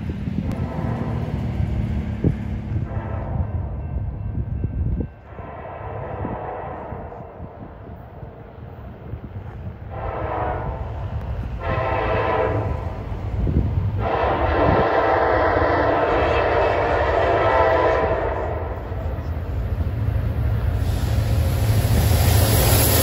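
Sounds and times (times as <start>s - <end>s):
low rumble of train: 0.0s - 23.0s
locomotive air horn blasts: 0.4s - 1.4s, 2.8s - 3.8s, 5.3s - 7.5s, 9.9s - 13.1s, 14.0s - 19.0s.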